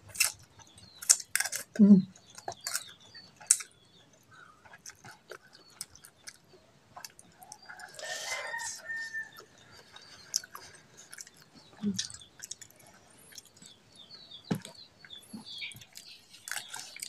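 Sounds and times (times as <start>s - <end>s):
chewing: 0.0s - 17.0s
rooster crowing: 7.8s - 9.5s.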